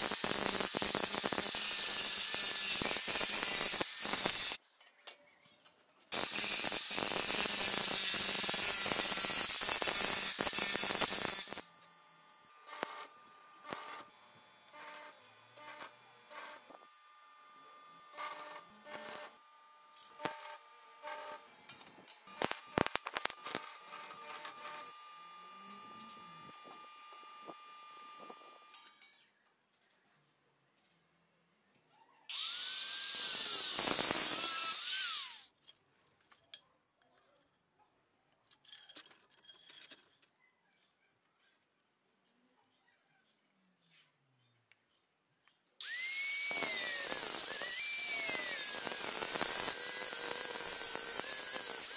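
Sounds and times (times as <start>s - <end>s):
angle grinder cutting steel: 0.0s - 4.6s, 6.1s - 29.2s, 32.3s - 35.5s, 45.8s - 51.9s
welding arc bursts: 0.0s - 4.6s, 6.1s - 11.8s, 12.4s - 21.5s, 22.3s - 28.8s, 32.3s - 35.5s, 45.8s - 51.9s.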